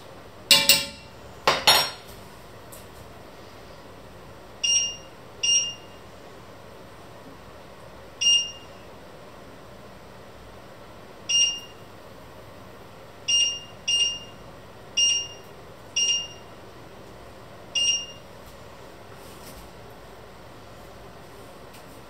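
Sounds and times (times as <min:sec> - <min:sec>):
hob touch control beeps: 0:04.6 - 0:05.9, 0:08.2 - 0:08.7, 0:11.3 - 0:11.8, 0:13.3 - 0:14.4, 0:15.0 - 0:16.4, 0:17.8 - 0:18.2.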